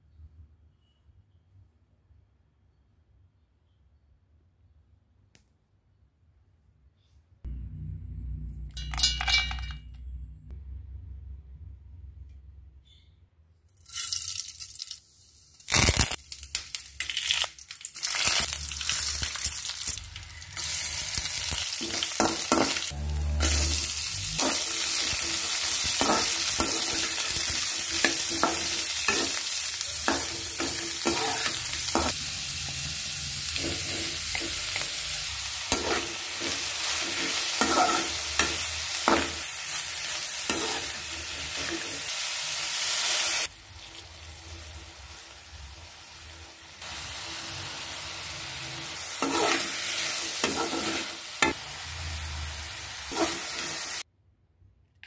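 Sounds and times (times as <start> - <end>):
green beans sizzling in oil: 13.8 - 54.1
spatula knocking and scraping pan: 30.0 - 32.2, 35.7 - 39.4, 50.4 - 51.6.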